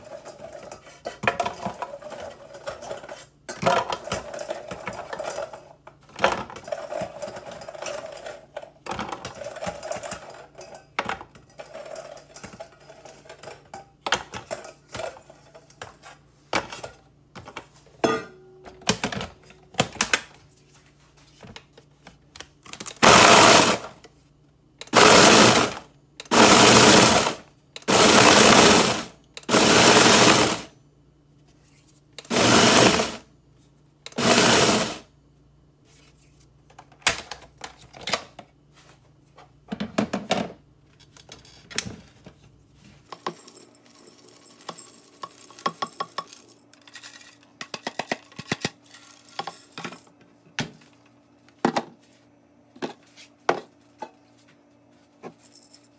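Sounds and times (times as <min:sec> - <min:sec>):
blender chopping cookies: 0:22.9 - 0:24.0, 0:24.8 - 0:30.7, 0:32.2 - 0:33.3, 0:34.1 - 0:35.1.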